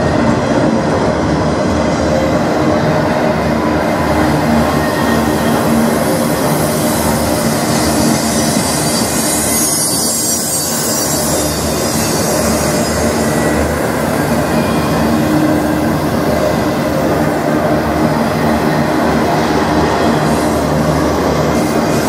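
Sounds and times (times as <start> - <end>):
train wheels rumbling on rails: 0.0 - 22.0
high-pitched wheel squeal: 4.6 - 16.6.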